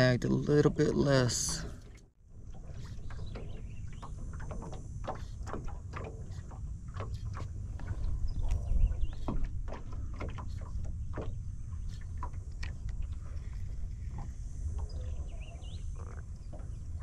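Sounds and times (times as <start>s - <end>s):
water lapping against hull: 0.0s - 17.0s
steady low rumble: 3.6s - 17.0s.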